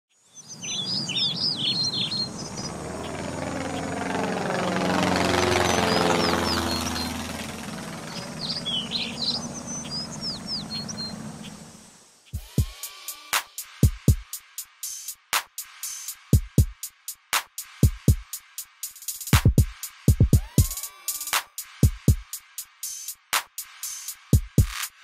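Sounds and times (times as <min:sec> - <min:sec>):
small birds chirping: 0:00.1 - 0:12.6
propeller airplane flying overhead: 0:00.9 - 0:12.1.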